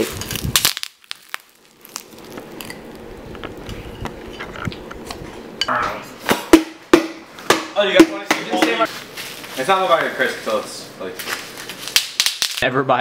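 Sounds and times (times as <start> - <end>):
bubble wrap popping: 0.0 - 3.6, 11.2 - 12.6.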